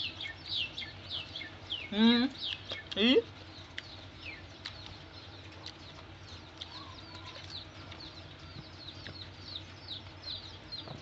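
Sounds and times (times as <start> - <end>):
low steady hum: 0.0 - 11.0
small birds chirping: 0.0 - 11.0.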